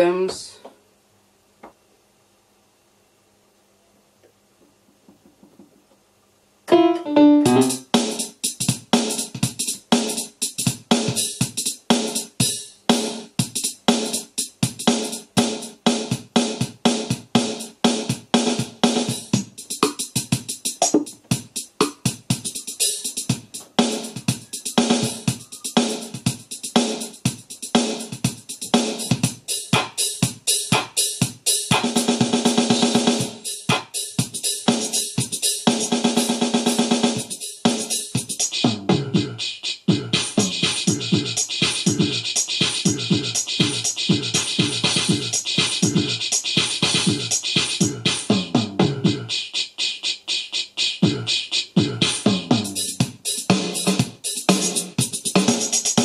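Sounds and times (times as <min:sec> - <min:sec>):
electronic keyboard rhythm pattern: 0:06.7 - 0:08.4, 0:19.2 - 0:32.0, 0:37.2 - 0:48.3, 0:49.0 - 0:56.0.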